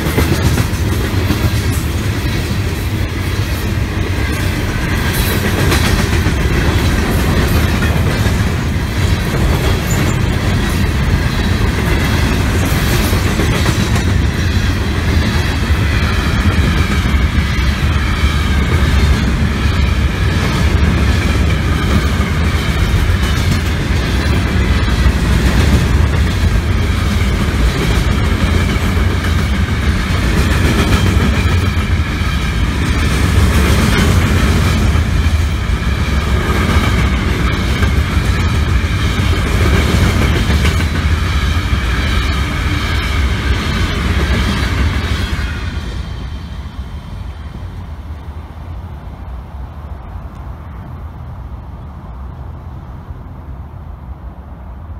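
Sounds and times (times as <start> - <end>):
clickety-clack over rail joints: 0.0 - 46.6
train wheels rumbling on rails: 0.0 - 54.9
high metallic whine: 1.4 - 28.1.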